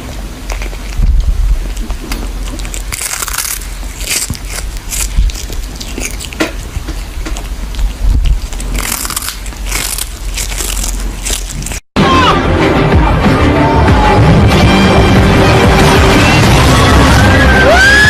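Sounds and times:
cat crunching fish: 0.0 - 11.9.

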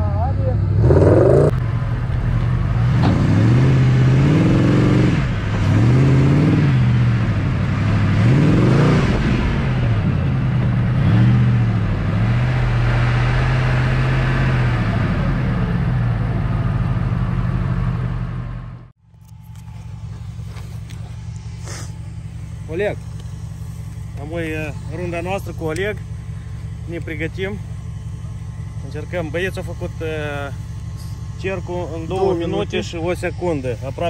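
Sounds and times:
off-road buggy engine revving: 0.0 - 34.0.

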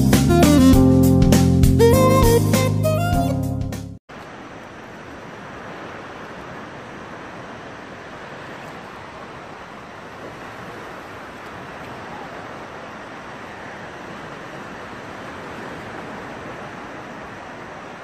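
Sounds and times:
shallow sea water rushing: 4.1 - 18.0
wind at shoreline: 4.1 - 18.0.

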